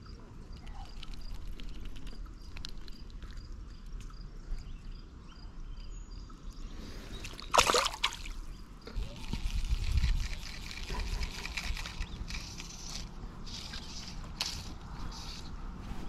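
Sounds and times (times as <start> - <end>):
fish splashing into water: 7.3 - 8.4
low wind rumble: 8.2 - 16.0.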